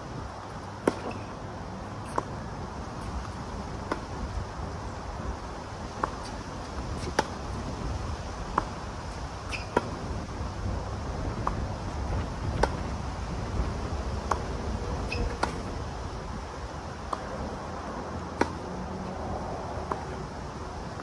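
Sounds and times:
racket striking tennis ball: 0.8s - 1.3s.

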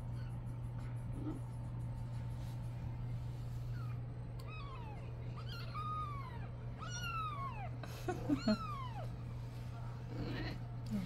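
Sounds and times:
kitten meowing: 3.8s - 7.7s.

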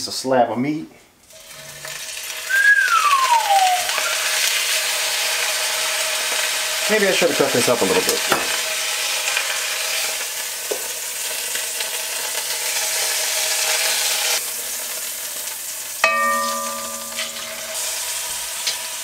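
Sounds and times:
meat sizzling in oil: 1.3s - 19.0s
knife clinking on metal pot: 16.0s - 17.8s.

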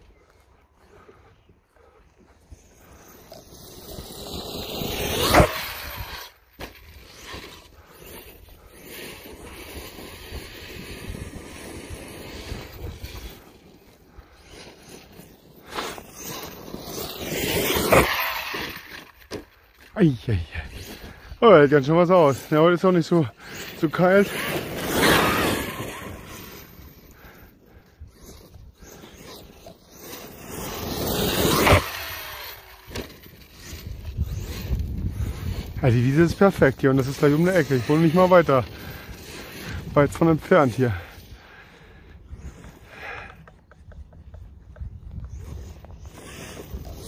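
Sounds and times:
rc truck electric motor and tyres: 0.0s - 47.0s
wind buffeting microphone: 33.6s - 36.8s, 41.0s - 47.0s.

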